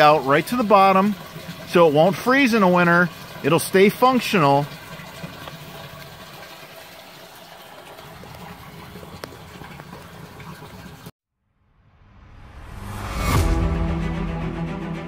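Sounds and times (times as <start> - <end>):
water pouring into drain: 0.0 - 11.1.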